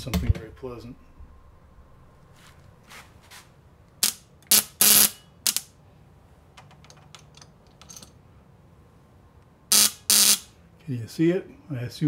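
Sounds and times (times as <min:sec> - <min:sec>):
ignition coil buzzing: 0:04.0 - 0:05.7, 0:09.7 - 0:10.6.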